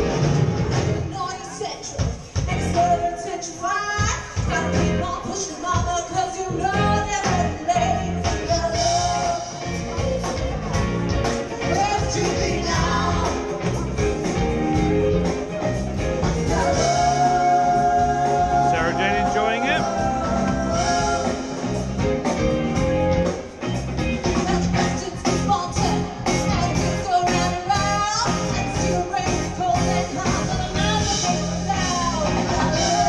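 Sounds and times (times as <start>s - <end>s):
live band playing: 0.0s - 33.0s
person singing: 16.5s - 21.8s.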